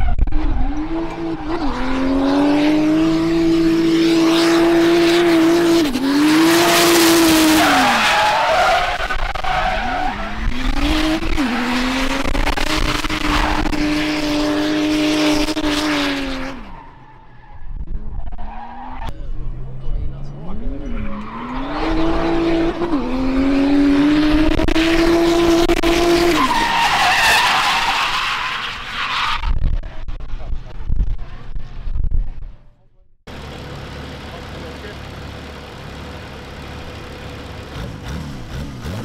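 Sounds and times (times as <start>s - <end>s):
car engine revving high: 0.2s - 16.7s, 18.9s - 27.0s, 33.3s - 39.0s.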